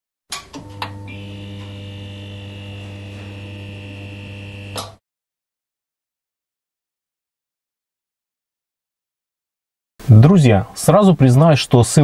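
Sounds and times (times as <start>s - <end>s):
high ringing tone: 0.6s - 4.8s
electronic drone: 1.2s - 4.8s.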